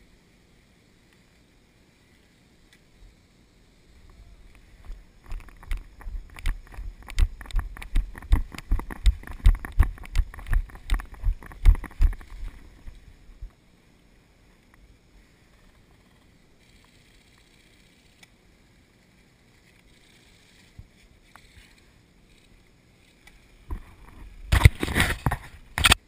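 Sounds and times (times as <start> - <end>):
running footsteps heavy thuds: 5.7 - 12.9.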